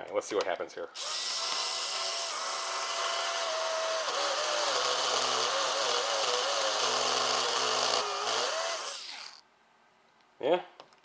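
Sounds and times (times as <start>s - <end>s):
small electric motor whining: 1.0s - 9.4s.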